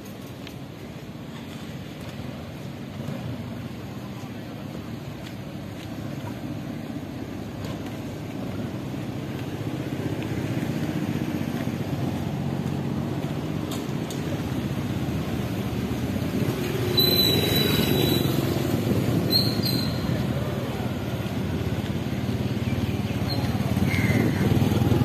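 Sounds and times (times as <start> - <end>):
street traffic hum: 0.0 - 25.0
short high squeal: 16.9 - 18.5.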